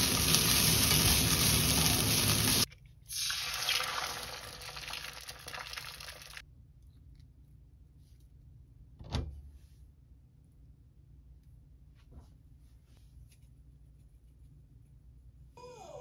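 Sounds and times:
egg sizzling in frying pan: 0.0 - 6.4.

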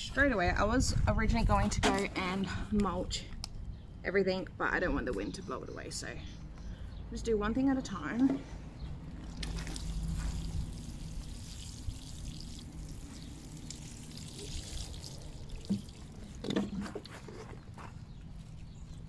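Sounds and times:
water pouring onto soil: 9.2 - 17.6.

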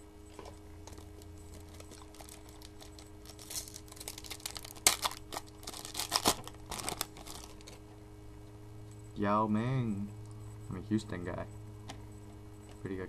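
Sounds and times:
low electrical hum: 0.0 - 13.0
foil wrapper crinkling: 0.8 - 7.8.

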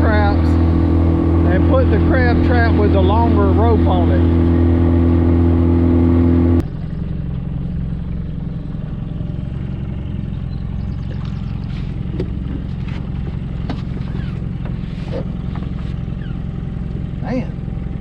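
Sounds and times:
outboard motor running: 0.0 - 18.0
knocks and clatter of line: 12.1 - 16.0.

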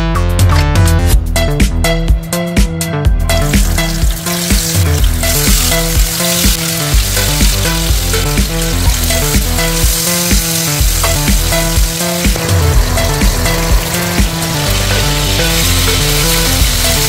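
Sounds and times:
electronic music with steady beat: 0.0 - 17.0
fish sizzling in hot oil: 3.4 - 17.0.

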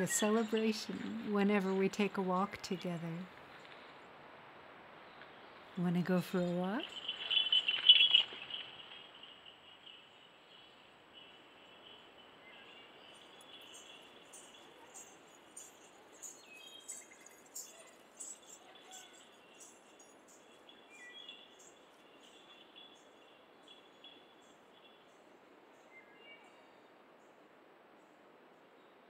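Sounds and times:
high bird chirps: 6.8 - 10.7, 11.9 - 23.0
high insect trill: 6.8 - 25.0.

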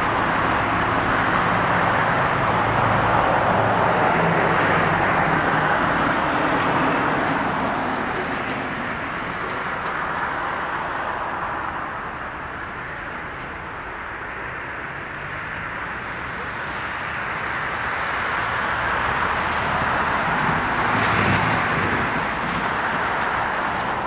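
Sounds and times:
jet engines at takeoff thrust: 0.0 - 24.0.

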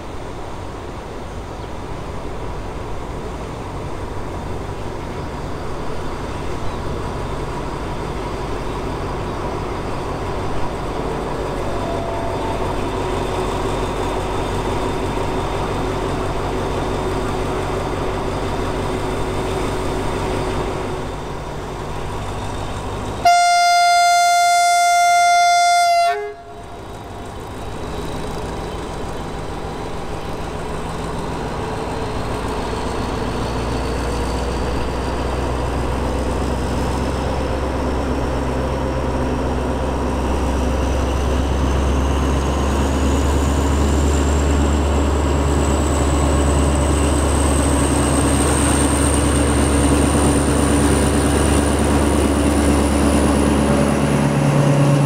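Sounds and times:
locomotive engine rumbling: 0.0 - 55.0
locomotive horn blast: 11.6 - 13.0, 23.2 - 26.8.

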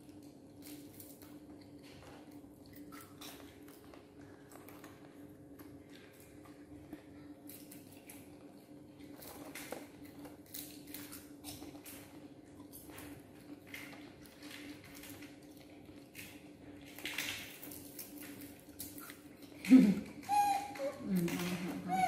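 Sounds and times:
monkeys chewing popcorn: 0.0 - 22.0.

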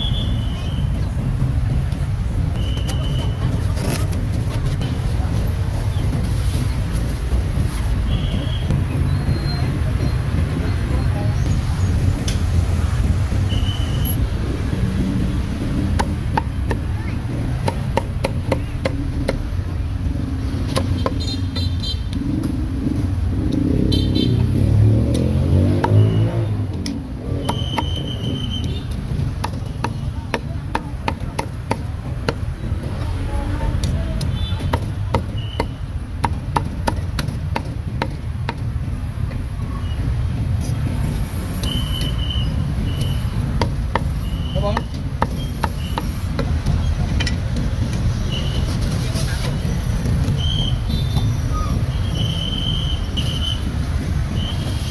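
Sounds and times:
street traffic rumble: 0.0 - 54.9
cleaver chopping meat: 29.4 - 32.4.

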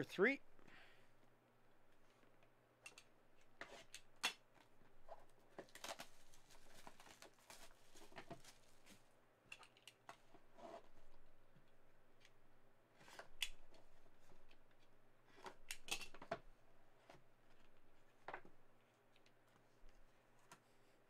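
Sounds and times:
plastic wrap crinkling: 5.6 - 9.1.

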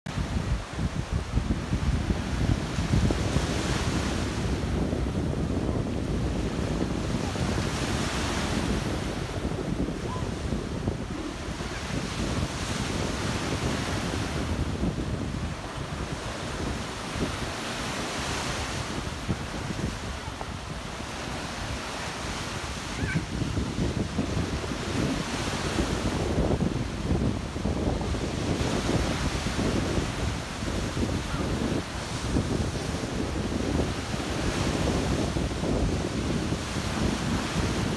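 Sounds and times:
surf washing up a sandy beach: 0.1 - 37.9
wind buffeting microphone: 0.1 - 37.9.

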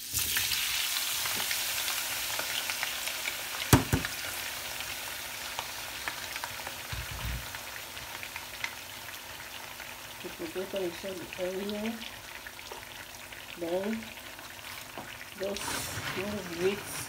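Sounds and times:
potatoes sizzling in oil: 0.0 - 17.0
sharp knock: 3.7 - 4.1.

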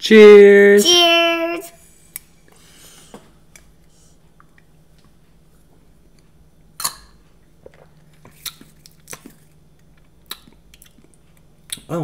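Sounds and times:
person gulping drink: 6.8 - 9.4
lip smacks: 6.8 - 11.9.

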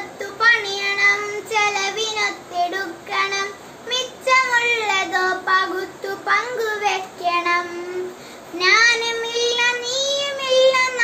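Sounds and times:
girl singing: 0.0 - 11.0
girl breathing: 8.0 - 8.6.

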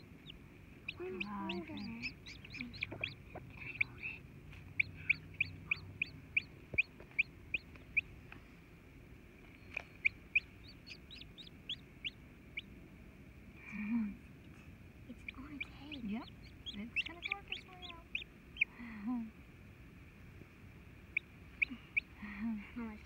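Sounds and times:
chicks peeping: 0.0 - 8.2, 9.4 - 12.7, 14.4 - 18.8, 21.1 - 22.2.

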